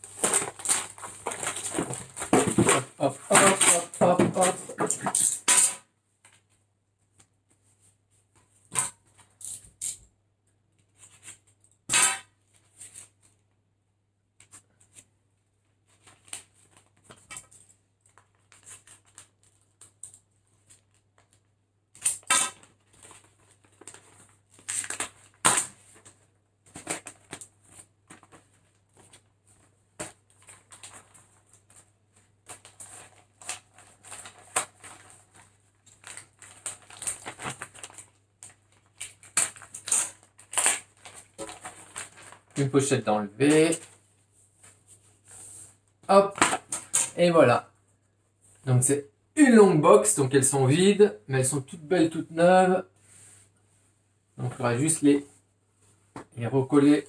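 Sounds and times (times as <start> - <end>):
plastic wrap and cardboard crackling: 0.0 - 5.7, 15.7 - 47.2.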